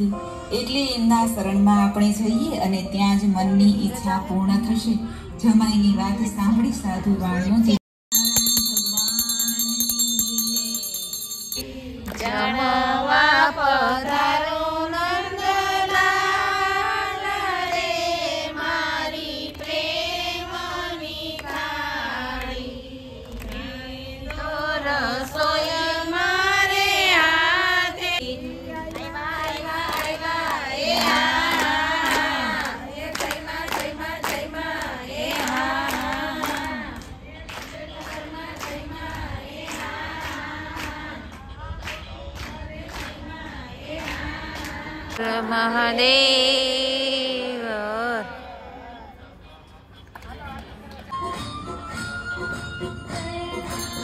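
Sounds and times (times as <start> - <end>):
hand bell ringing: 8.1 - 11.8, 53.6 - 54.0
women singing together: 11.6 - 49.0.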